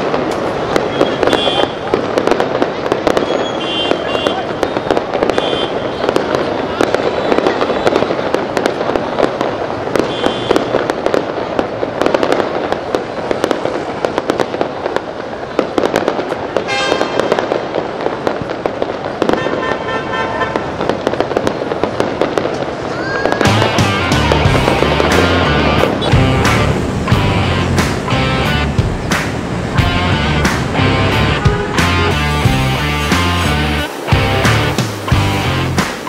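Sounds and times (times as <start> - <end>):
fireworks crackling and popping: 0.0 - 36.0
music: 23.5 - 36.0.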